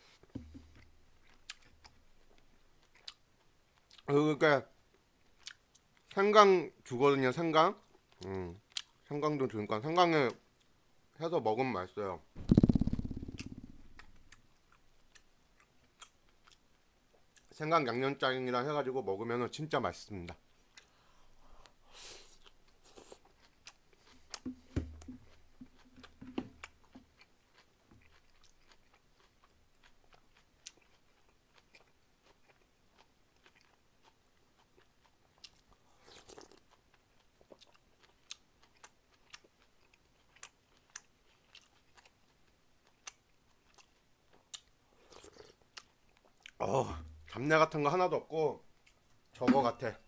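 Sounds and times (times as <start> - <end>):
close chewing with mouth clicks: 0.6 - 4.1, 4.9 - 6.2, 7.8 - 9.1, 12.8 - 17.5, 20.3 - 46.6.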